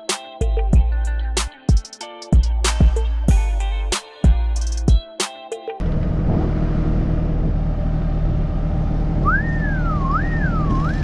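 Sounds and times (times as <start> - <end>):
diesel engine running: 5.8 - 11.0
wavering whistle: 9.2 - 11.0.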